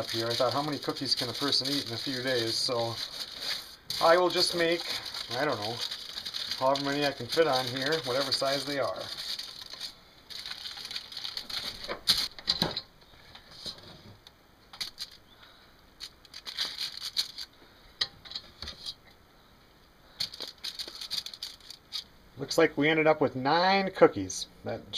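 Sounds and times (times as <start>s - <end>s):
aluminium foil crinkling: 0.0s - 12.5s, 14.7s - 15.3s, 16.0s - 17.5s, 20.2s - 22.1s.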